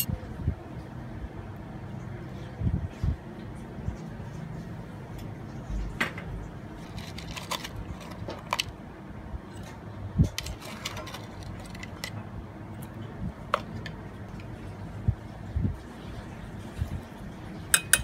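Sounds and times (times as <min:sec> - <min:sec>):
metal spoon clinking on jar and pot: 0:17.7 - 0:18.0.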